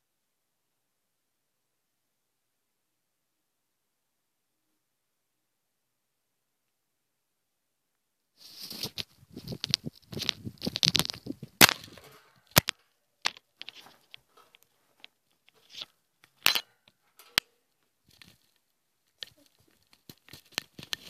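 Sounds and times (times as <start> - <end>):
microphone handling crackling: 8.4 - 16.7
rustling: 8.4 - 21.0.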